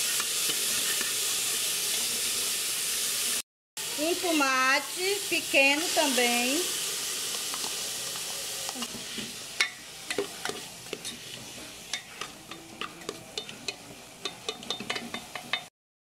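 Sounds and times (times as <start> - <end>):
oil sizzling: 0.0 - 15.7
spoon stirring vegetables in pot: 6.9 - 15.7
spoon clicking against pan: 11.9 - 15.7.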